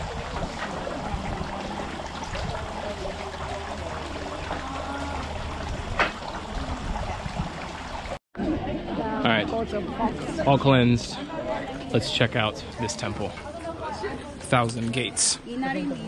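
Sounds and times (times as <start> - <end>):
water trickling into basin: 0.0 - 8.2.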